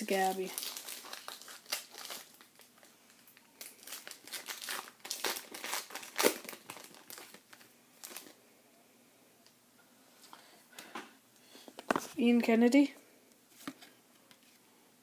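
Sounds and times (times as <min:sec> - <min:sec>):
plastic wrapper crinkling: 0:00.0 - 0:08.4.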